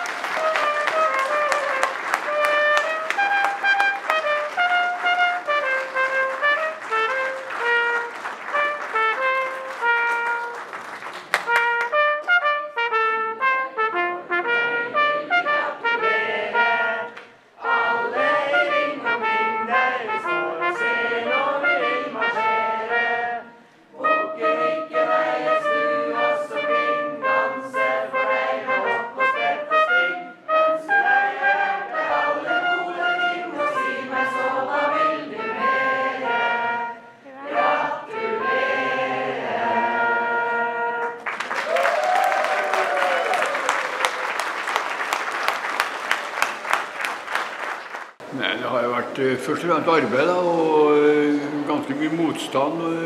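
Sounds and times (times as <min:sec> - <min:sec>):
crowd clapping: 0:00.0 - 0:12.4, 0:41.0 - 0:48.3
brass music with trumpet: 0:00.0 - 0:41.6.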